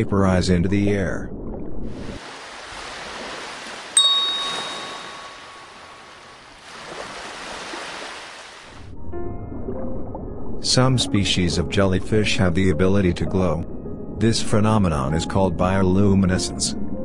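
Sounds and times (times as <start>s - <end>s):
small waves washing on sand: 2.0s - 8.8s
bell-like ding: 4.0s - 6.0s.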